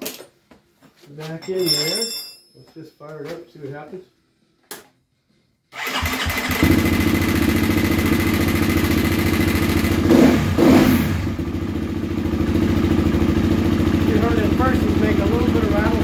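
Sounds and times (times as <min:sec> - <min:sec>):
motorcycle engine starting and idling: 0:05.8 - 0:16.0.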